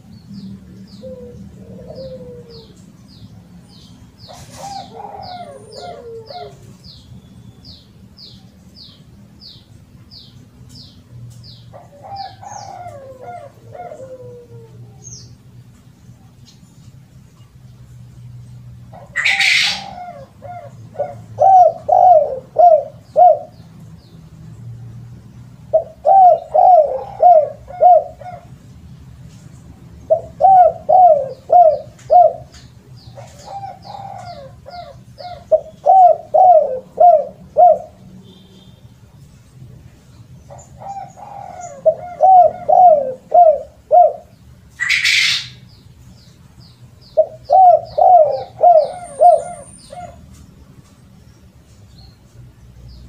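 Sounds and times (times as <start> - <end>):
faint high bird chirping: 0.0 - 14.2, 44.2 - 53.0
dove cooing: 0.9 - 7.0, 11.7 - 15.4, 18.9 - 23.6, 25.6 - 28.6, 30.0 - 38.0, 40.5 - 45.6, 47.1 - 50.4.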